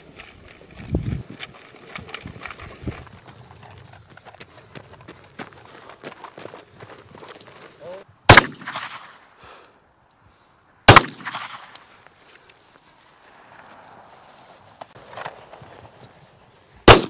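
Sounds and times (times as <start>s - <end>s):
faint footsteps: 0.0s - 8.1s, 11.5s - 16.8s
echoing pistol shots: 8.3s - 9.3s, 10.9s - 11.8s.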